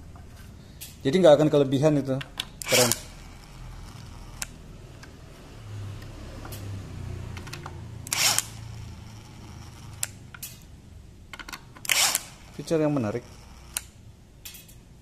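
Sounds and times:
screws clicking and clinking: 2.4 - 4.5, 7.4 - 10.7, 11.4 - 14.8
impact driver motor: 2.6 - 4.6, 8.1 - 10.2, 11.8 - 14.0.

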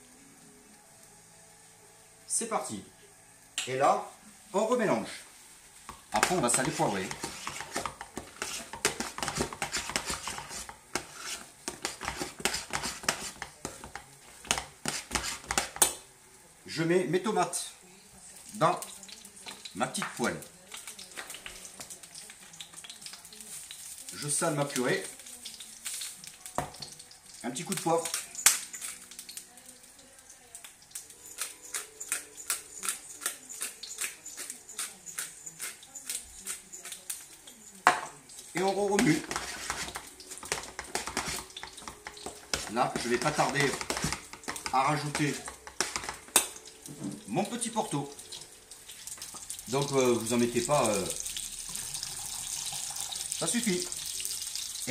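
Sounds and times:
utensil scraping a metal pot: 6.2 - 15.8, 31.2 - 38.0, 38.6 - 46.4
pepper mill grinding: 25.8 - 29.5, 30.6 - 47.5.

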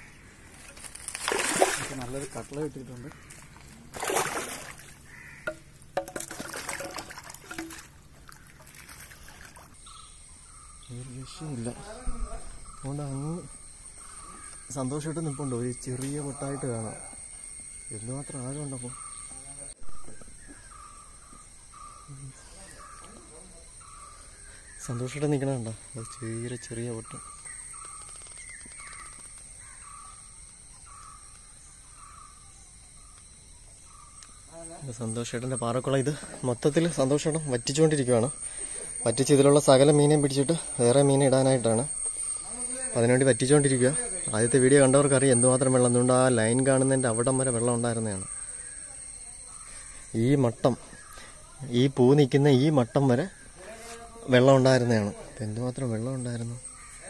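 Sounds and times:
high-pitched insect drone: 0.0 - 57.0
water splashing: 0.7 - 2.6, 3.8 - 9.8
crow cawing: 3.0 - 5.8, 14.0 - 14.7, 28.7 - 30.2, 56.7 - 57.0.

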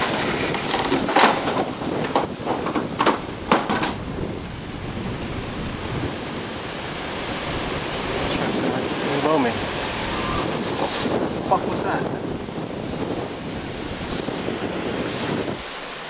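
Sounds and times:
storm wind buffeting microphone: 0.0 - 16.0
sharp knocks: 0.7 - 4.0.

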